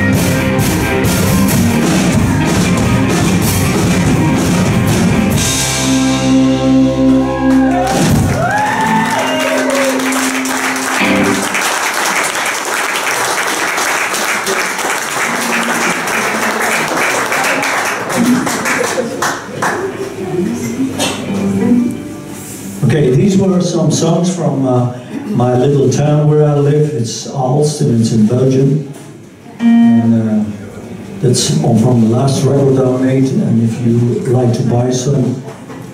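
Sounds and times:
electric guitar bending notes: 0.0 - 11.9, 15.2 - 16.5, 29.4 - 32.2
rock band playing live: 0.0 - 12.0, 15.1 - 16.7, 20.7 - 22.9, 29.3 - 30.2
audience applause: 7.2 - 20.6.

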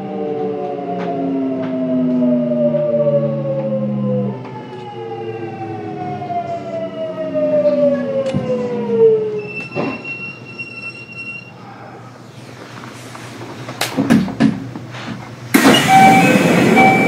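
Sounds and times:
train inverter motors whining: 15.5 - 17.0.

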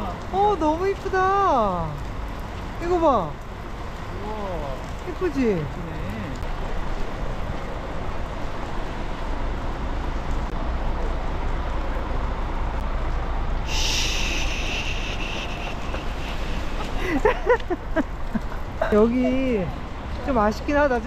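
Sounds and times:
high hiss: 13.6 - 17.3.

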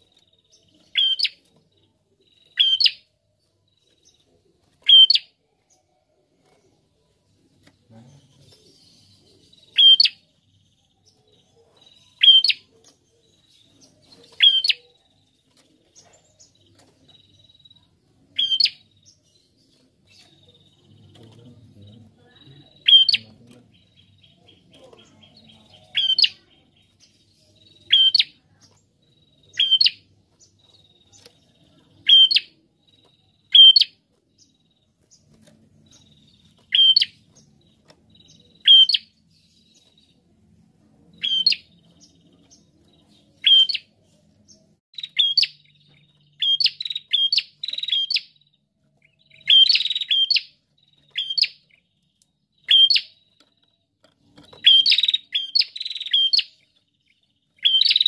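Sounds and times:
bird calling sharp notes: 4.8 - 5.3, 18.4 - 18.8, 22.7 - 23.4.

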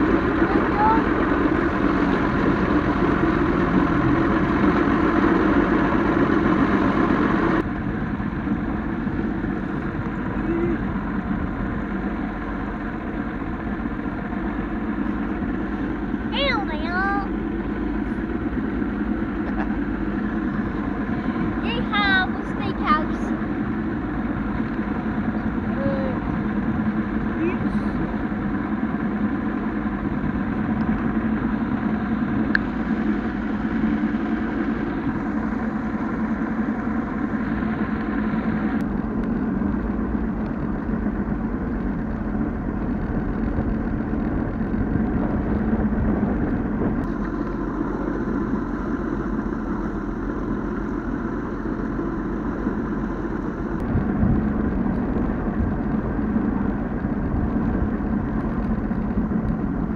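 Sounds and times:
outboard motor running: 0.0 - 59.9
wind noise: 17.3 - 59.9.

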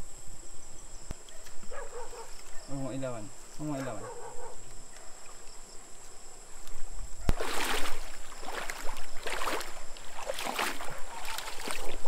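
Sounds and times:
wading splashes in stream: 6.7 - 12.0.

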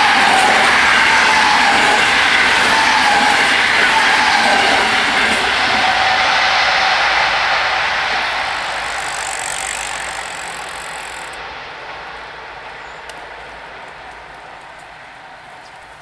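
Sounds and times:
high hiss: 0.0 - 15.4
electric train rumble and rail noise: 0.0 - 16.0.

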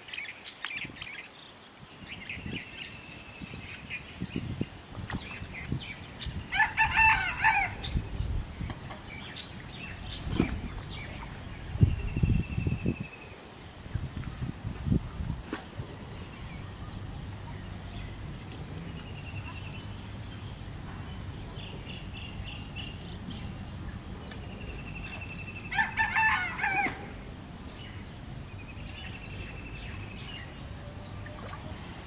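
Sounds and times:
rooster crowing: 6.5 - 7.9, 25.7 - 27.1.

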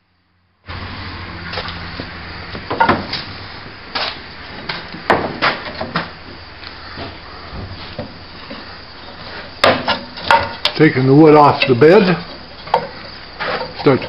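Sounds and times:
steady low hum: 0.0 - 14.0
wooden boards knocking: 2.6 - 3.2, 4.7 - 6.2, 9.6 - 10.8.

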